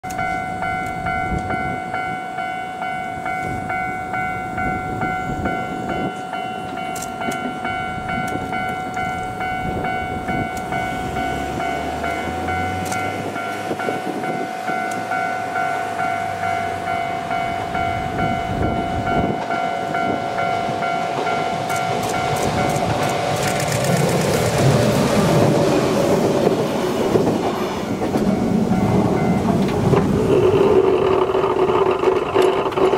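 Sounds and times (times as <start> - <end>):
level crossing bell ringing: 0.0 - 23.4, 27.8 - 29.8
train rumble: 0.0 - 32.9.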